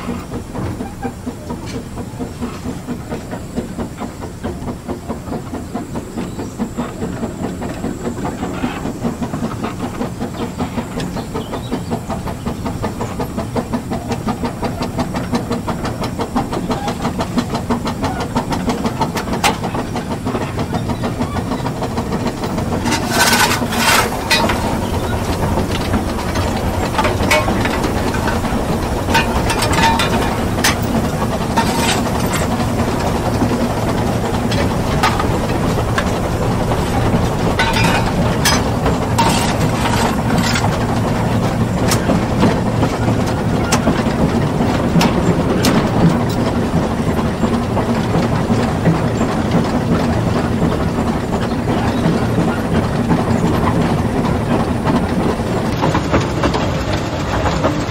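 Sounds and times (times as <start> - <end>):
train wheels rumbling on track: 0.0 - 57.9
sharp clicks and knocks: 14.2 - 46.5.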